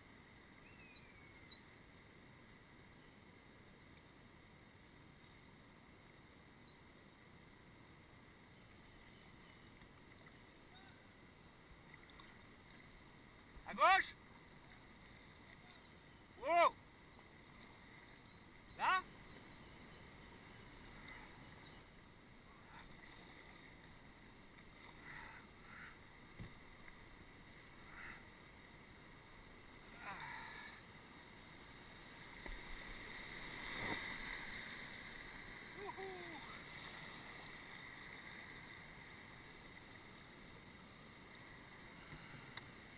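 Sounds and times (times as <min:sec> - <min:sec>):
soft water splashes: 0:09.0 - 0:16.5, 0:20.1 - 0:42.9.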